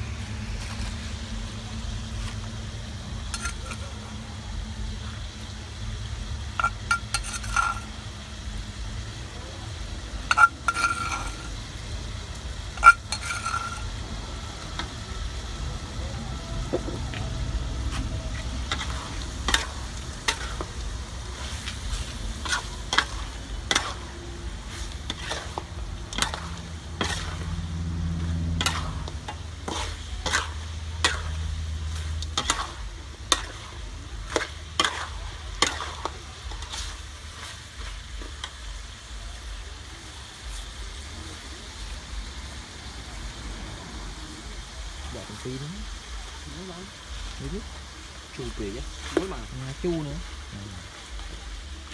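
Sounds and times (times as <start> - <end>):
meat sizzling in a wok: 0.0 - 51.9
metal spatula scraping a pan: 3.2 - 4.1, 6.5 - 8.0, 10.3 - 11.6, 12.7 - 14.0, 17.9 - 38.6
metal clanking on wok: 3.2 - 4.2, 6.5 - 8.0, 10.2 - 11.6, 12.7 - 14.0, 18.6 - 38.6.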